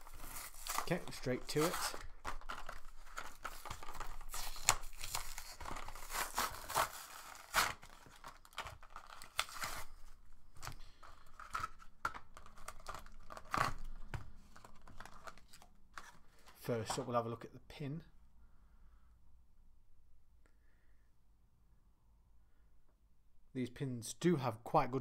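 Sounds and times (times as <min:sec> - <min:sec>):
cardboard ripping: 0:00.0 - 0:10.0, 0:12.4 - 0:13.9
plastic crinkling: 0:00.0 - 0:17.0.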